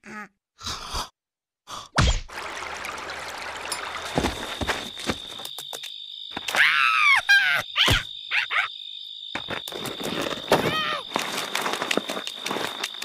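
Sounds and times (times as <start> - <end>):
cartoon character squeals and grunts: 6.5 - 8.7, 10.6 - 11.0.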